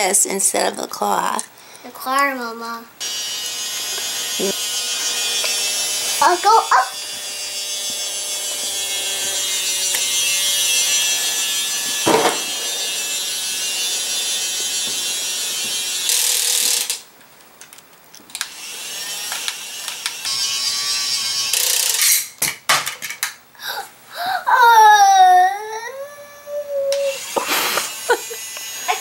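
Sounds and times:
toy motor and gears whirring: 3.0s - 17.0s, 18.3s - 22.4s, 24.8s - 29.0s.

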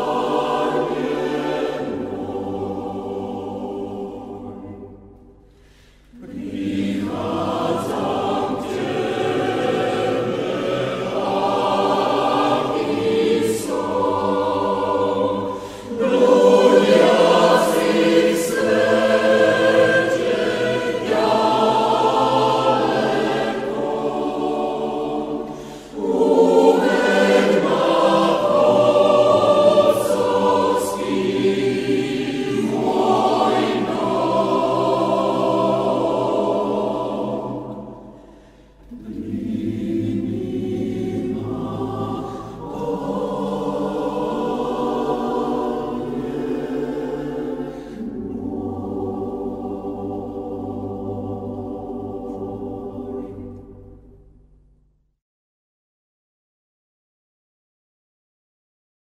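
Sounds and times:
choir singing a hymn: 0.0s - 54.4s.

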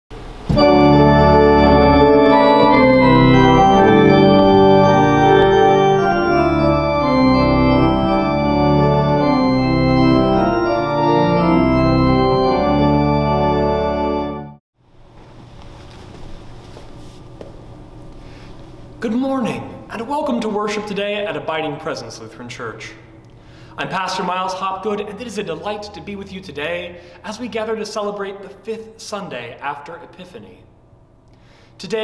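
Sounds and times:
organ playing chords: 0.5s - 14.6s.

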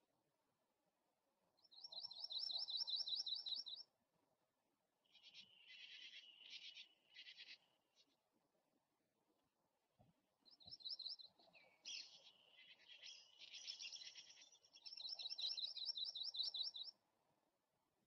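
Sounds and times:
bird chirping: 1.6s - 3.9s, 5.0s - 8.2s, 10.4s - 17.0s.

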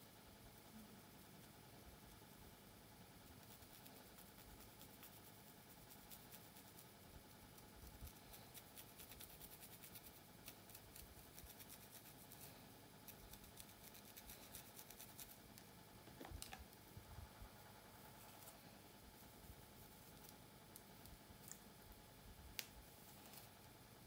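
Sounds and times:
fingernail scratching scalp: 7.9s - 15.4s.

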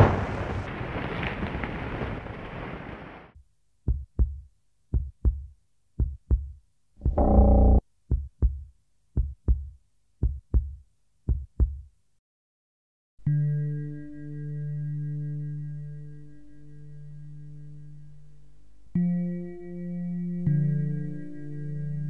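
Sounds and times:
rumbling noise: 0.0s - 3.4s, 7.0s - 7.8s
heartbeat thuds: 3.9s - 11.9s
long low tone: 7.0s - 7.8s.

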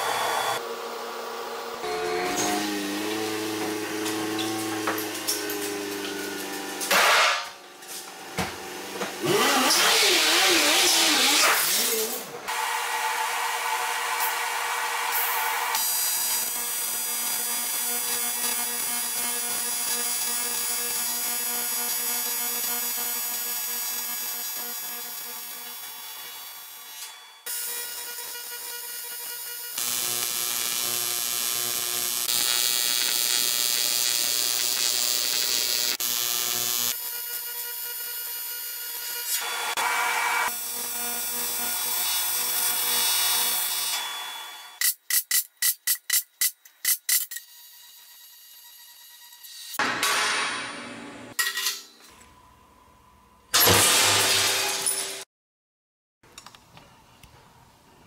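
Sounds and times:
welding arc buzzing hiss: 0.0s - 0.6s, 1.8s - 50.8s.

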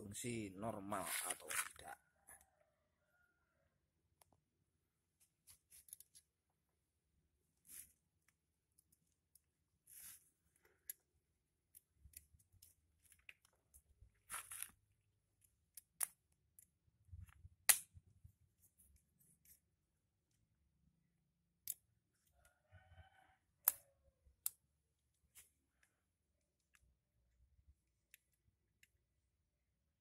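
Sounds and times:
clicks and snaps of tools and wires: 5.2s - 6.4s, 7.7s - 9.6s, 10.6s - 14.8s, 15.4s - 18.1s, 21.3s - 22.4s, 23.5s - 27.1s, 28.0s - 29.2s.

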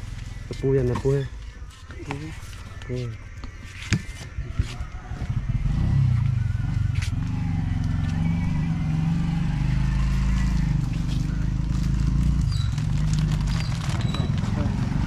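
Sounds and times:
vehicle engine humming: 0.0s - 15.0s.

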